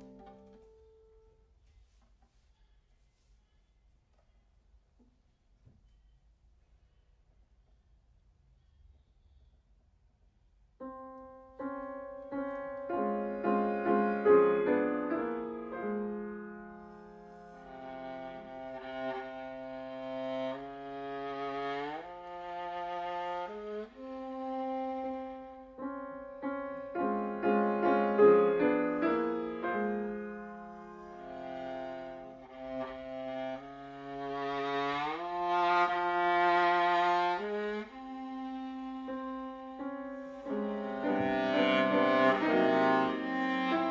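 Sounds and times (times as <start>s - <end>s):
piano chords: 0.0s - 1.4s, 10.8s - 43.9s
viola notes: 0.0s - 1.5s, 10.8s - 43.9s.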